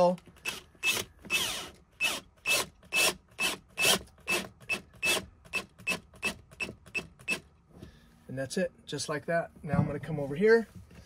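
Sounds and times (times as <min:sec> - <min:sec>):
drill driving a screw into metal: 0:00.4 - 0:07.4.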